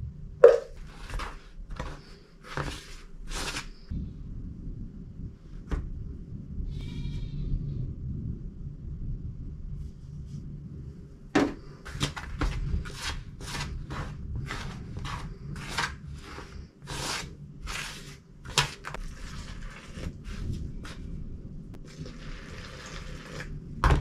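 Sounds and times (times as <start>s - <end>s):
hand kneading dough in plastic basin: 0.4s - 3.9s, 11.4s - 24.0s.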